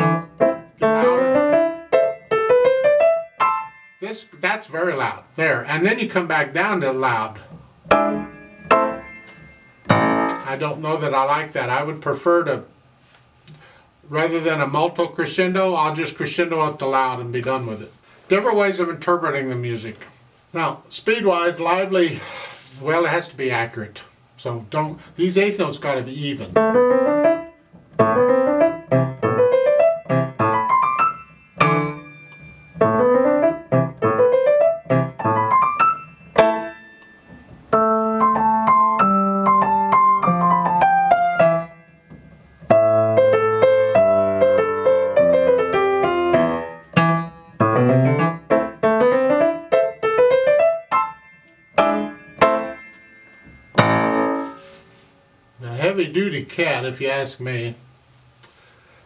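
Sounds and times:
grand piano piece: 0.0s - 12.5s, 24.8s - 57.6s.

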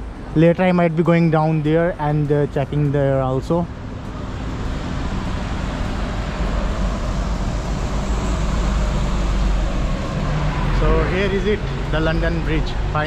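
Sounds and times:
traffic on wet road: 0.0s - 13.0s.

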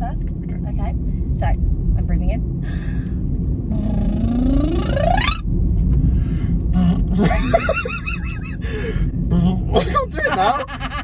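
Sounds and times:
car road rumble: 0.0s - 11.0s
lip-roll vocal siren: 3.7s - 5.4s
wobbling vocal sound: 3.7s - 5.4s.

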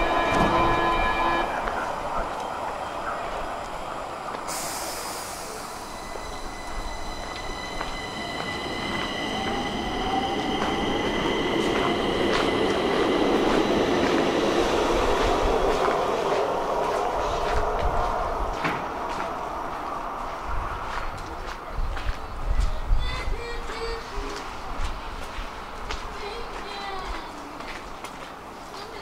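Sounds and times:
wheels squealing on rails: 0.0s - 17.7s
metro train rolling noise: 0.0s - 29.0s.

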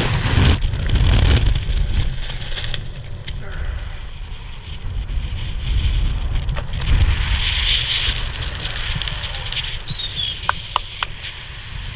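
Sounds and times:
wind buffeting microphone: 0.0s - 11.9s.

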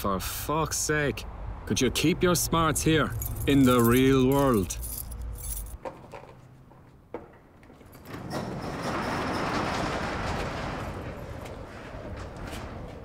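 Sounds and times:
key rattling: 3.1s - 5.8s
garage door rolling up: 7.3s - 13.0s.

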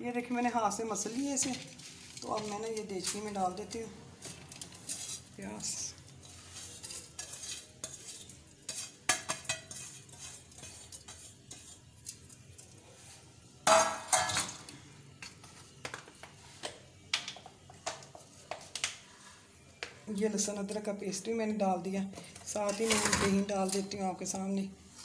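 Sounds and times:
metal cookware clinking: 4.2s - 12.8s, 13.6s - 14.7s, 22.5s - 24.1s
spoon knocking metal pot: 8.8s - 9.8s.

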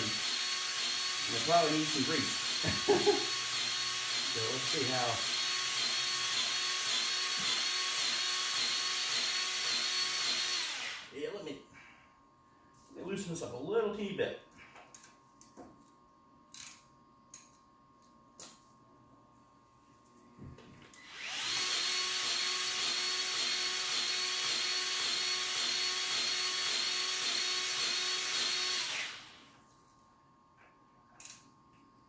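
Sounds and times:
grease gun motor running: 0.0s - 11.2s, 21.0s - 29.5s.

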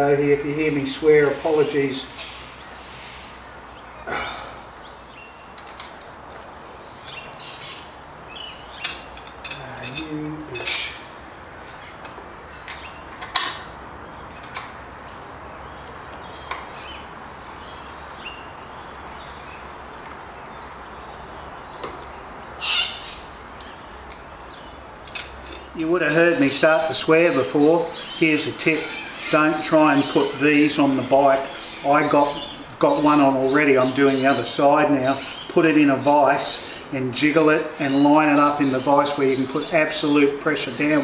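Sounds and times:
metal parts clicking and clinking: 8.8s - 10.9s, 25.0s - 25.9s.

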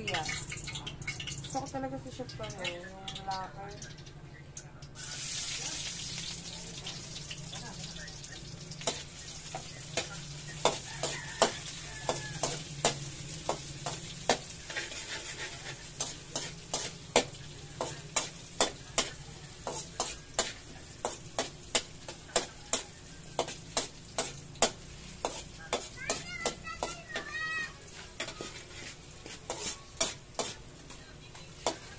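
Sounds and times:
onions sizzling in oil: 0.0s - 3.8s, 5.0s - 31.9s
spatula clacking against pan: 8.8s - 31.9s.

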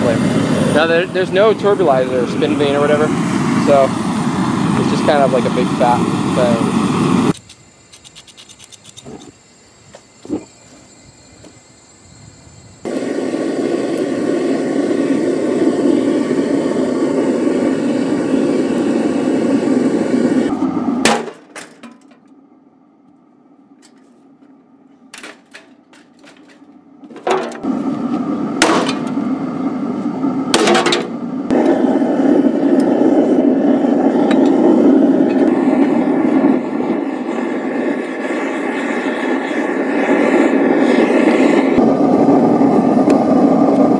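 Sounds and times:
burner deep rushing noise: 0.0s - 7.3s, 27.6s - 43.9s.

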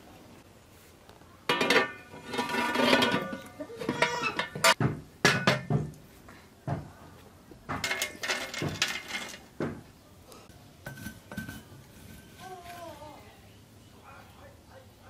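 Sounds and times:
pot and utensils clinking: 1.5s - 5.9s, 7.7s - 9.8s, 10.8s - 13.0s.

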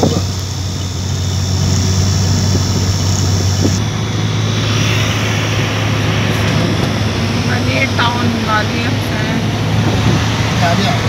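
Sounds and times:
constant low hum: 0.0s - 11.0s
vehicle engine and road noise: 0.0s - 11.0s.

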